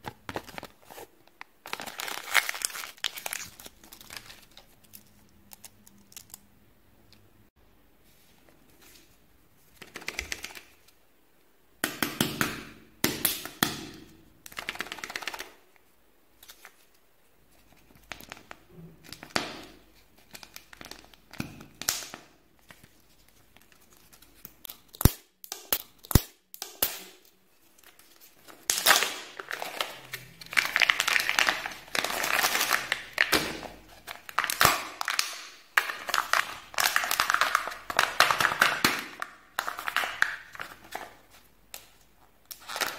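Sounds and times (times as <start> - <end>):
wrapper crinkling: 0.3 - 6.4, 27.6 - 42.9.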